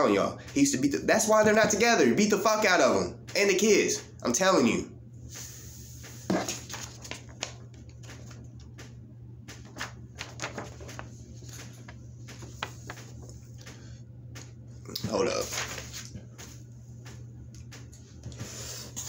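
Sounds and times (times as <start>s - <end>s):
paper rustling and shuffling: 5.4s - 19.0s.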